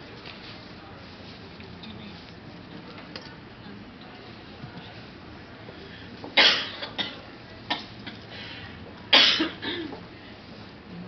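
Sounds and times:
person coughing: 6.4s - 7.9s, 9.1s - 10.0s.

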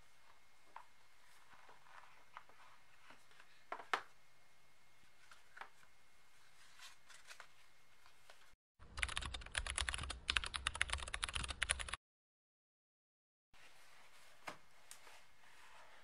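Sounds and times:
rapid keyboard typing: 8.8s - 12.0s.

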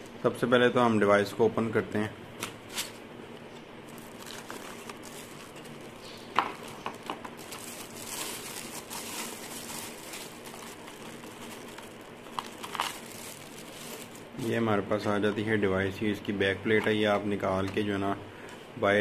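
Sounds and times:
plastic wrapping crinkling: 3.8s - 14.6s.

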